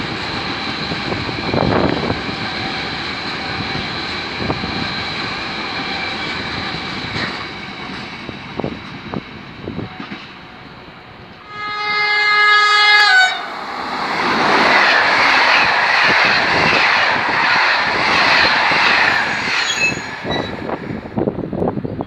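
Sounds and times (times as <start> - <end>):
train wheels rushing on rail: 0.0 - 22.0
train horn chord: 11.0 - 13.5.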